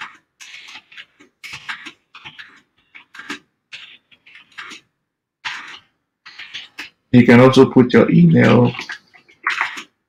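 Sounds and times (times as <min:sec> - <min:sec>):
computer keyboard typing: 0:00.0 - 0:07.4.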